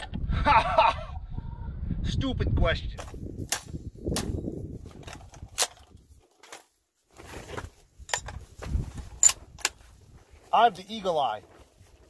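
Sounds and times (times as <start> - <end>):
rifle handling clicks and knocks: 3.0 - 6.8, 8.0 - 9.9.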